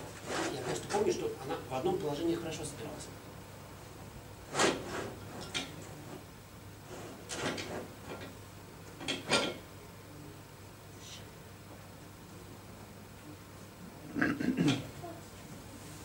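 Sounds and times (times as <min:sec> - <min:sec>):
hardware scraping and clunking: 0:04.5 - 0:06.2, 0:06.8 - 0:08.3.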